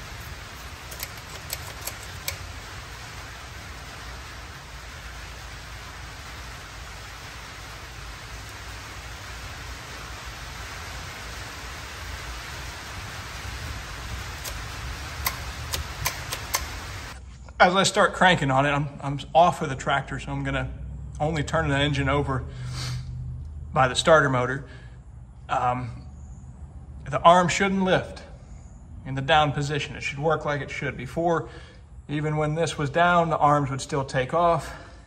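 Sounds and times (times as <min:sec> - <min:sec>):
background hiss: 0:00.0 - 0:19.7
light metallic clicks: 0:00.9 - 0:02.5, 0:15.2 - 0:16.8.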